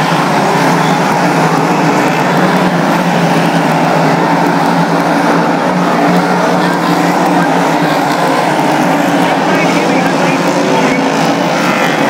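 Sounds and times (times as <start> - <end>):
race car engines: 0.0 - 12.0.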